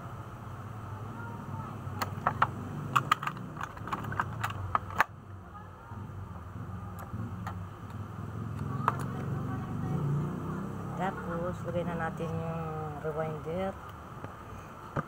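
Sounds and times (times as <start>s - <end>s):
steady low hum: 0.0s - 15.0s
small metal parts clicking: 2.0s - 5.1s.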